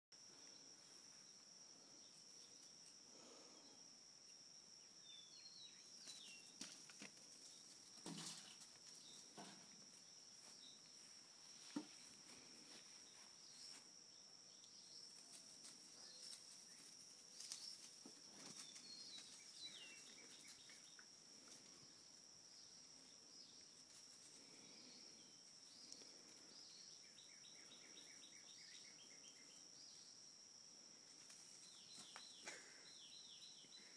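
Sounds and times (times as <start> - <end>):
faint bird chirps: 12.7 - 30.2, 31.5 - 33.9.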